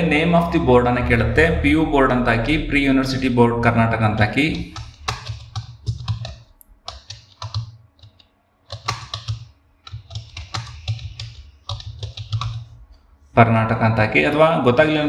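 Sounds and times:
typing on computer keyboard: 4.5s - 12.8s.

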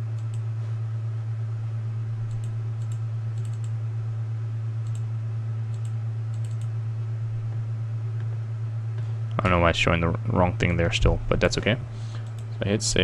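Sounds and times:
low electrical hum: 0.0s - 13.0s
computer mouse clicks: 0.1s - 0.4s, 2.3s - 3.8s, 4.8s - 5.1s, 5.7s - 6.7s, 12.2s - 12.5s.

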